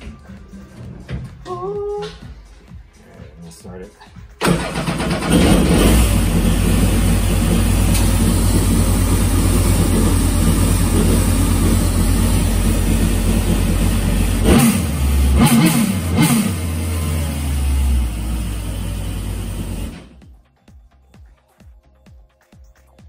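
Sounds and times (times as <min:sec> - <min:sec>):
jet-ski engine running: 0:04.8 - 0:20.0.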